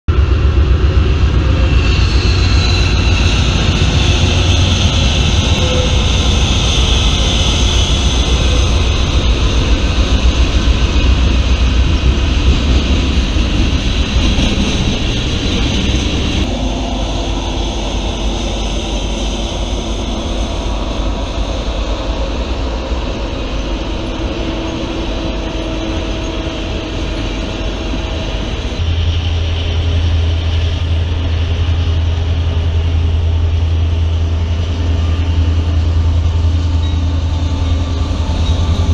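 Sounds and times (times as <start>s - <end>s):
freight train rolling by: 0.1s - 38.9s.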